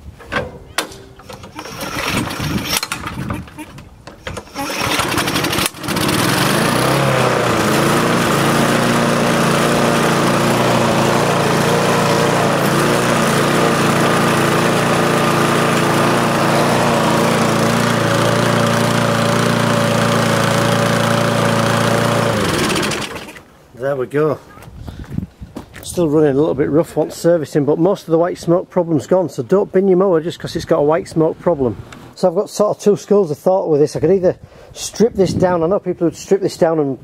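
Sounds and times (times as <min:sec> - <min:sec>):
lawn mower engine running: 0:01.0 - 0:23.4.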